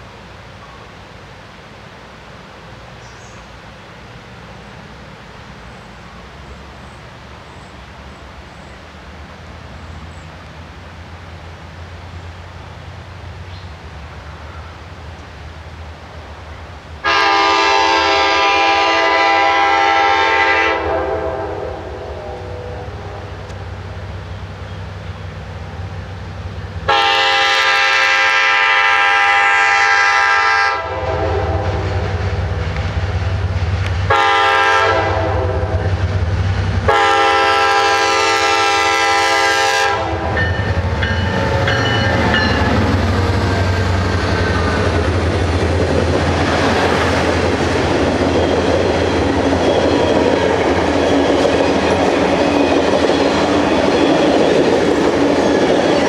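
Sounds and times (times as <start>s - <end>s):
diesel locomotive rumble: 0.0s - 56.0s
locomotive air horn: 17.0s - 23.5s, 26.9s - 32.3s, 34.1s - 35.9s, 36.9s - 42.5s
wheels on rails: 40.2s - 56.0s.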